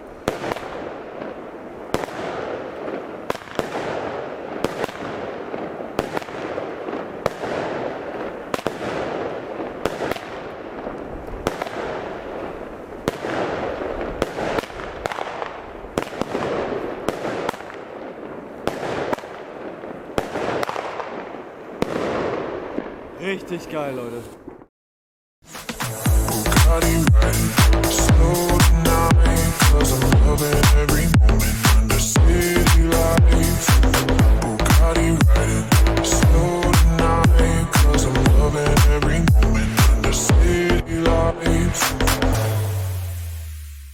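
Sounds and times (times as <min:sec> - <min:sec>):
firework bangs: 0:00.0 - 0:24.7
firework rushing noise: 0:41.8 - 0:43.9.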